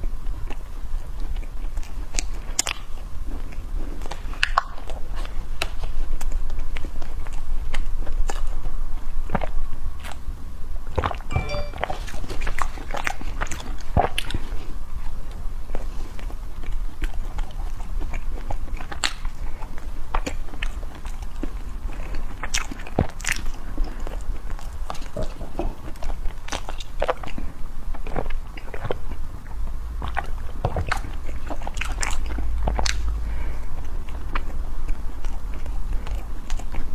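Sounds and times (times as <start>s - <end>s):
person chewing soft cakes: 0.0s - 11.7s, 12.3s - 36.9s.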